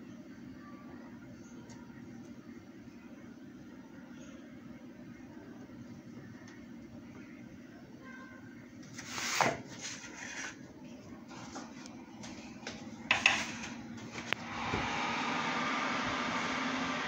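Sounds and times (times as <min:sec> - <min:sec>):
cookware knocking and clattering: 0:13.1 - 0:13.7.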